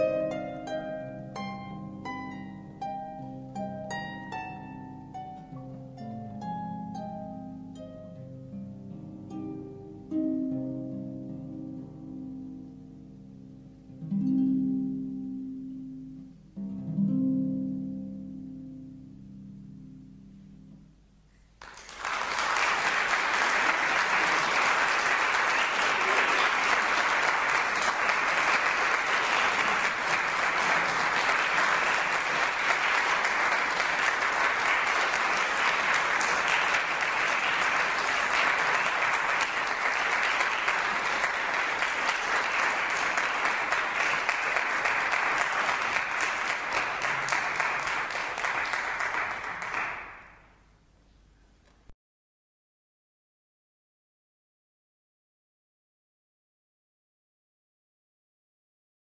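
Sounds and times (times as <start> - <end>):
harp notes: 0.0 - 21.4
audience applauding: 21.6 - 50.5.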